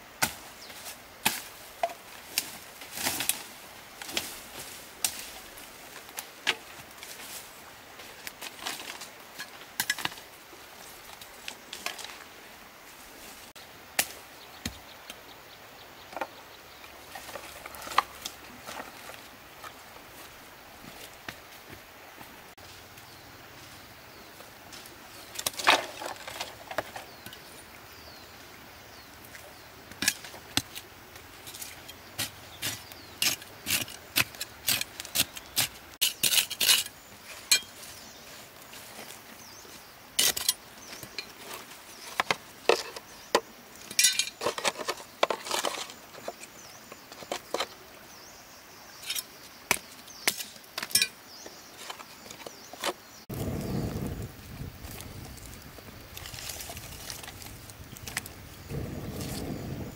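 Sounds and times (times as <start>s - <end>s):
rocks and sticks clacking: 8.3s - 10.2s, 17.1s - 19.8s, 25.3s - 27.5s, 29.9s - 37.9s, 40.2s - 46.6s, 49.0s - 51.2s.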